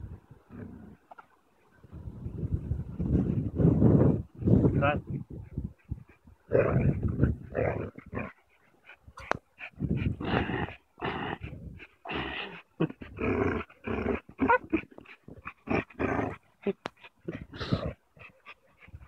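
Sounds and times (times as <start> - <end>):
dogs growling: 0.4 - 1.2, 6.0 - 19.0.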